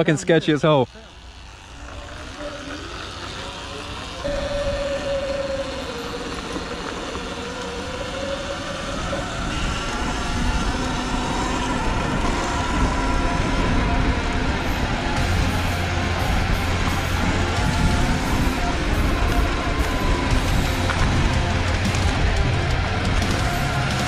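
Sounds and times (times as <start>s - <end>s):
electric motor whine: 0.0s - 24.0s
low rumble: 1.2s - 24.0s.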